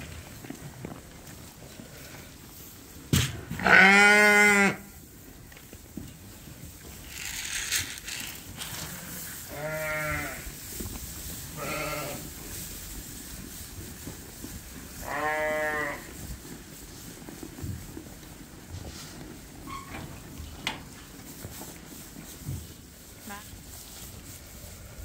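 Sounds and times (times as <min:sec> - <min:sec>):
sheep bleating: 0:03.6 - 0:04.8, 0:09.5 - 0:10.4, 0:11.6 - 0:12.2, 0:15.0 - 0:16.1.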